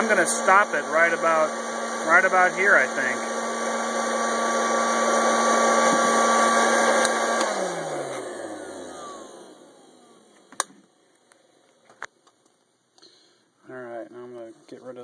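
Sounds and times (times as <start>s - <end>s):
popcorn popper fan hum: 0.0s - 10.7s.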